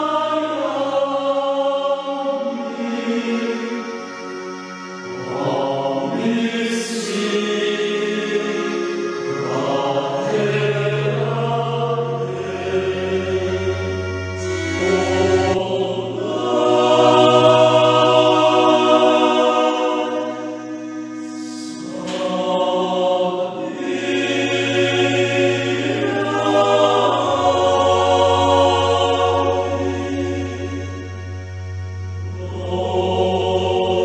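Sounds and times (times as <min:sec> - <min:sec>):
keyboard accompaniment: 0:00.0 - 0:34.0
men singing a slow hymn: 0:05.2 - 0:30.9
low bass notes: 0:09.1 - 0:34.0.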